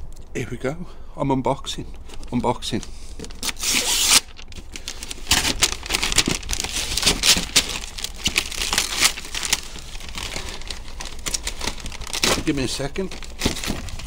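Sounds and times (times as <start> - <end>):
wrapping paper tearing and crumpling: 3.1 - 14.0.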